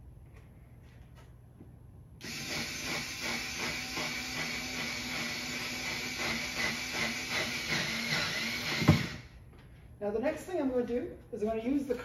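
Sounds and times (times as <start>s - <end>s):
cordless drill driving screw: 2.2s - 9.3s.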